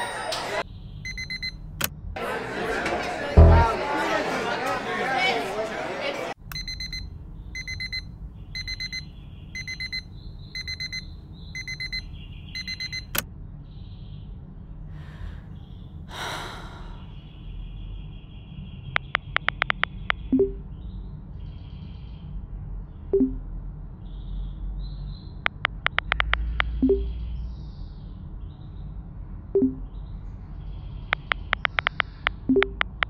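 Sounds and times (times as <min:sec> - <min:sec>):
alarm beeping in bursts: 0:01.1 - 0:01.6, 0:06.5 - 0:13.1, 0:19.0 - 0:20.6, 0:23.2 - 0:23.4, 0:25.5 - 0:27.1, 0:29.6 - 0:29.8, 0:31.2 - 0:33.0
short low tone: 0:03.4 - 0:03.8
phone keyboard taps: 0:31.2 - 0:33.0.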